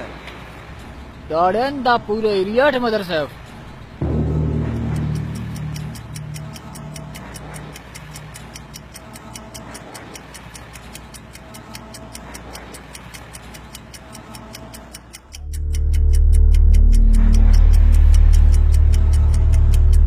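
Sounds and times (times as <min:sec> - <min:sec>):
low droning film score: 0:00.0 - 0:08.8, 0:15.2 - 0:20.0
fast even ticking: 0:04.0 - 0:20.0.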